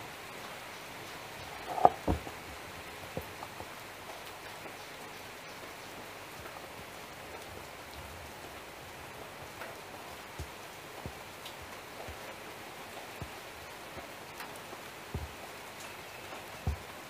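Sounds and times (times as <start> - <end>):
faint low knocks: 1.5 - 2.3.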